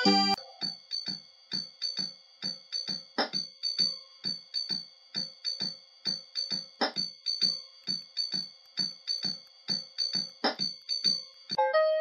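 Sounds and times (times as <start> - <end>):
electronic keyboard music: 11.6 - 12.0.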